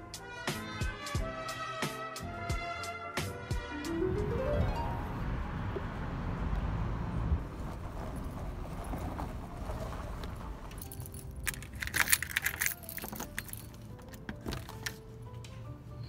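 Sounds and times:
car road noise inside cabin: 4.2 - 11.8
keys jangling: 10.7 - 15.0
key turning in door lock: 11.4 - 14.9.

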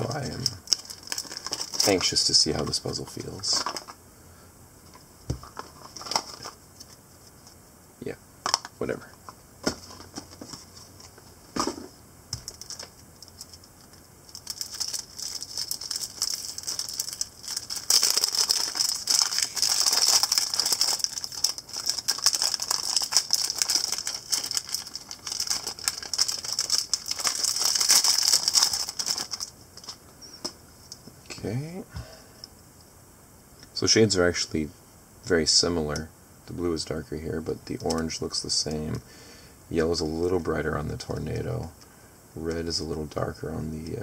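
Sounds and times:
plastic wrap crinkling: 0.0 - 4.0, 12.4 - 30.0.

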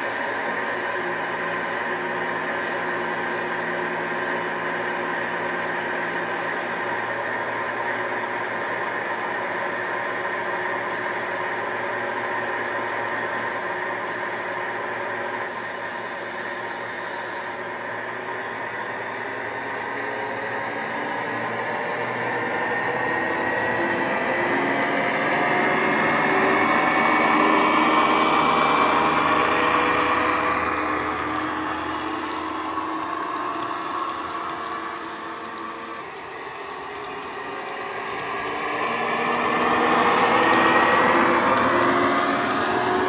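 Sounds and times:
brief hiss: 15.6 - 17.6.

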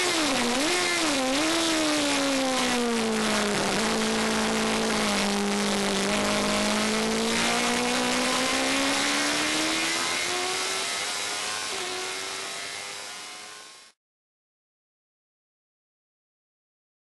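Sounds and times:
racing car engine accelerating: 0.0 - 14.0.

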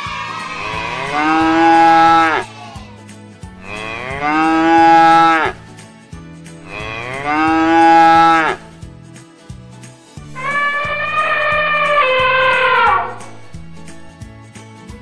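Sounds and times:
cow mooing: 0.6 - 2.4, 3.6 - 5.6, 6.7 - 8.6, 10.4 - 14.0.

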